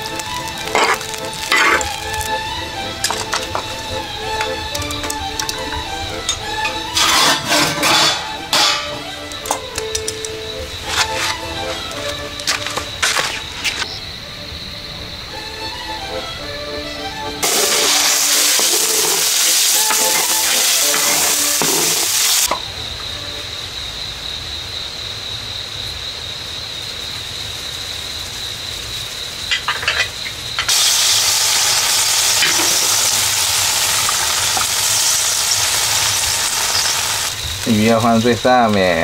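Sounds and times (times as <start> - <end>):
wok sizzling hiss: 0.0 - 15.8, 17.1 - 39.0
clicks: 9.3 - 10.4.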